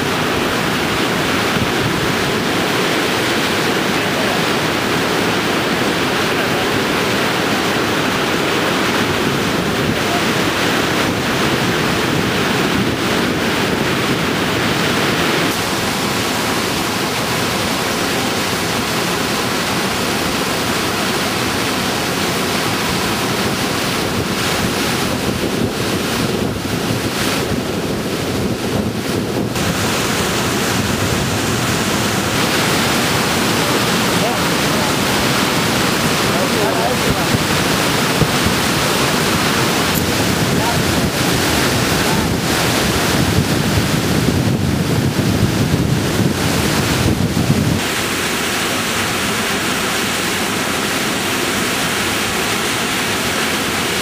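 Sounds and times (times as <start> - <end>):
wind buffeting microphone: 0.0 - 48.1
waterfall rushing: 0.0 - 54.0.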